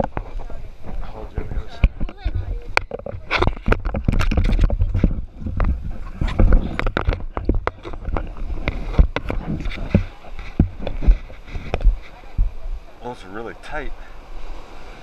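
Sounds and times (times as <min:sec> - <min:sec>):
scuba gear being handled: 0:02.1 - 0:12.6.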